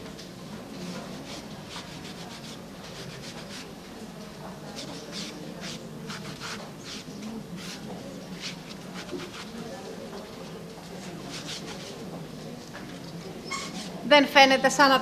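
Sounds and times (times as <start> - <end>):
sponge rubbing on wood: 1.1 - 3.7, 4.7 - 9.6, 11.2 - 12.0.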